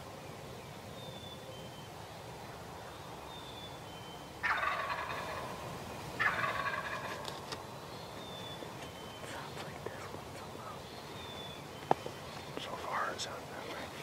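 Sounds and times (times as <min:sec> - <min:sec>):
turkey gobbling: 0:04.4 - 0:05.6, 0:06.2 - 0:07.2.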